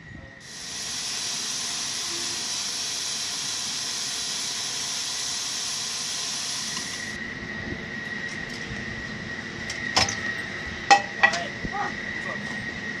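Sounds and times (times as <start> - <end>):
jet turbine whine: 0.0 - 13.0
thin steady tone: 0.2 - 8.2
loud hiss: 0.4 - 7.2.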